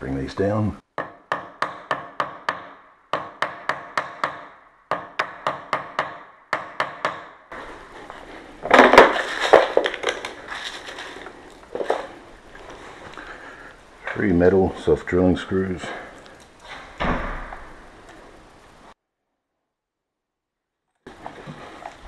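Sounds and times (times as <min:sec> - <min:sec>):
rummaging through screws and parts: 0:08.1 - 0:12.9.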